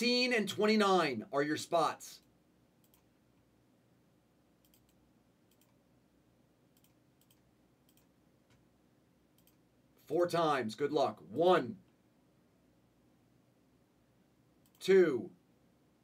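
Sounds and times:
mouse and keyboard clicks: 0:04.6 - 0:05.8, 0:06.8 - 0:08.6.

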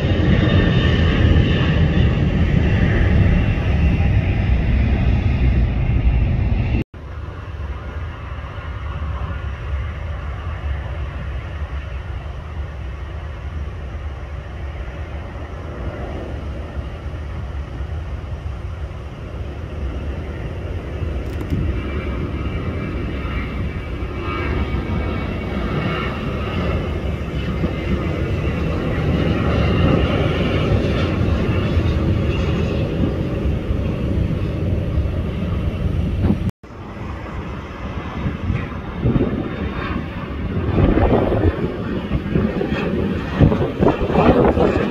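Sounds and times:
jet engines roaring at takeoff: 0:00.0 - 0:44.9.

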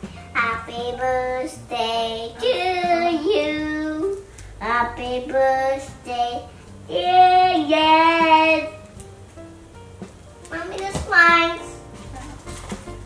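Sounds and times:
high child-like singing voice: 0:00.4 - 0:08.8, 0:10.5 - 0:11.8.

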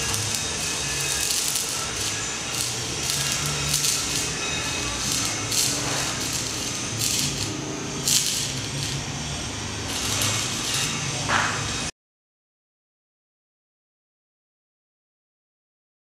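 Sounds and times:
welding arc crackling: 0:00.0 - 0:11.9.

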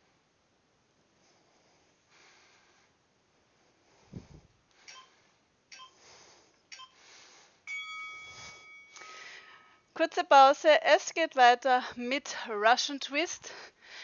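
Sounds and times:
person breathing and sniffing: 0:03.6 - 0:07.6.

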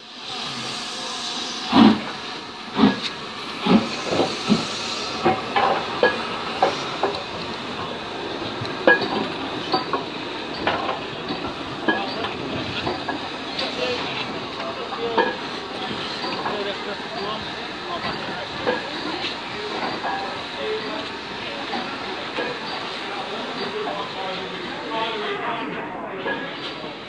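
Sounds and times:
steam train chugging: 0:00.0 - 0:27.0.

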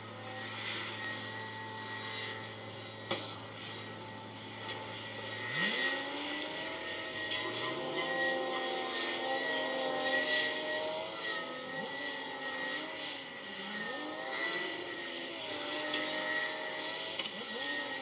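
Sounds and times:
heavy diesel engines working: 0:00.0 - 0:12.2.

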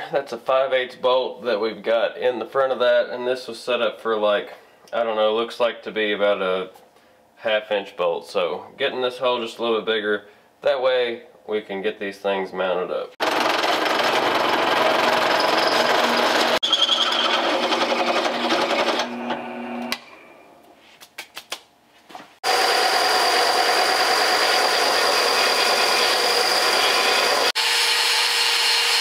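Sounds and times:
angle grinder cutting steel: 0:13.2 - 0:20.1, 0:22.4 - 0:29.0
drill press drilling steel: 0:13.2 - 0:20.2, 0:22.4 - 0:29.0
power tool whining: 0:13.2 - 0:20.2, 0:22.4 - 0:29.0.

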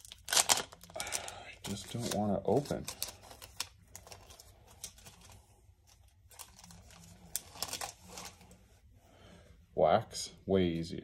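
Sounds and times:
cards being handled: 0:00.0 - 0:08.6
plastic wrapper crinkling: 0:00.0 - 0:08.6.

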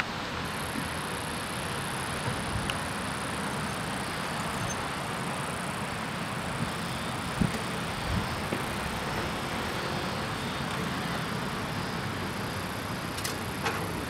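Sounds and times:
even rushing hiss: 0:00.0 - 0:14.0
thin high steady whine: 0:00.0 - 0:14.0.

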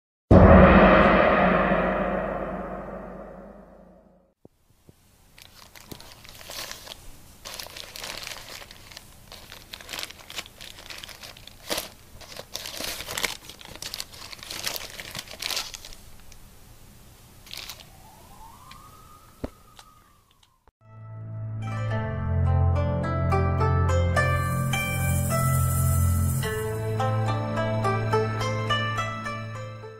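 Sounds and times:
paper wrapper crinkling: 0:05.3 - 0:16.4, 0:17.4 - 0:18.0.

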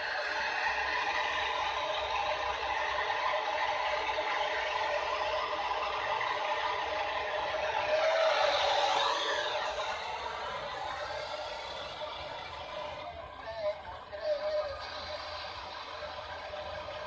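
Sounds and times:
radio static hiss: 0:10.2 - 0:17.0.

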